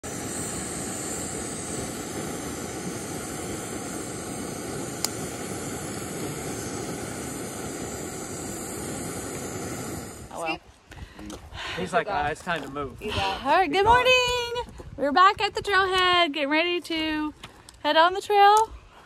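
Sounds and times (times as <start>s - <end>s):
steady rushing noise: 0.0s - 10.5s.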